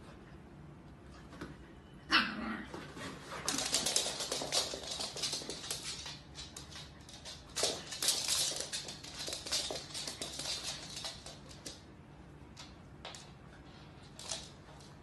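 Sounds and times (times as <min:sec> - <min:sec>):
dog claws skittering on wood floor: 0:03.2 - 0:11.9, 0:12.5 - 0:13.4, 0:14.0 - 0:15.0.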